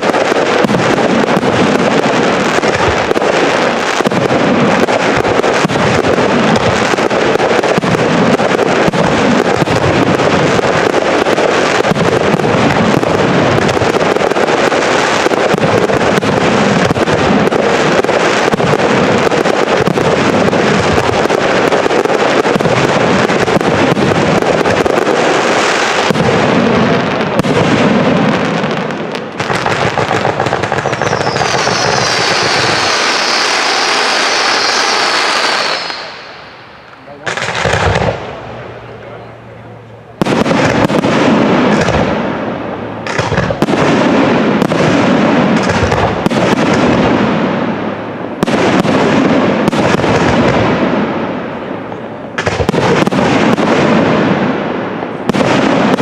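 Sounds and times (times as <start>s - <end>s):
fireworks booming and crackling: 0.0s - 56.0s
firework whistles falling in pitch: 30.7s - 37.0s.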